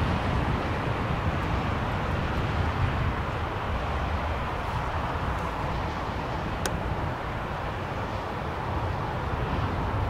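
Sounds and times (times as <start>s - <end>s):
jet engines running: 0.0s - 10.0s
wind buffeting microphone: 0.0s - 10.0s.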